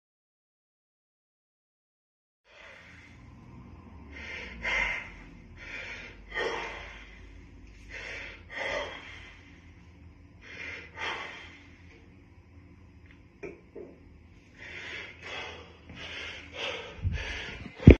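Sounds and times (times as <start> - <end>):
man breathing hard: 2.5 - 12.1, 14.4 - 17.9.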